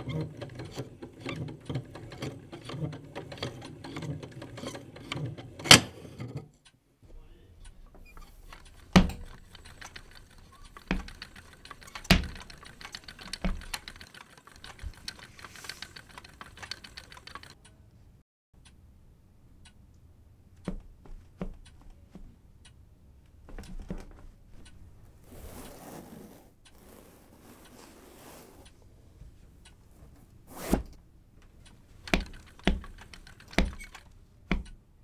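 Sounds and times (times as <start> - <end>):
small clicks clattering: 7.6 - 17.6, 31.4 - 34.8
soft rustle: 23.4 - 30.9.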